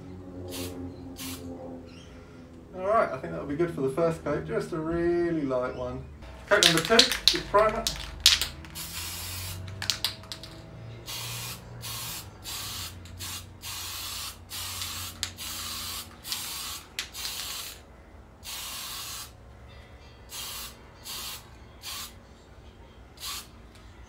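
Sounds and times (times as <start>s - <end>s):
aerosol spray can hissing: 0.5s - 1.4s, 6.5s - 17.8s, 18.4s - 19.3s, 20.3s - 22.1s, 23.2s - 23.5s.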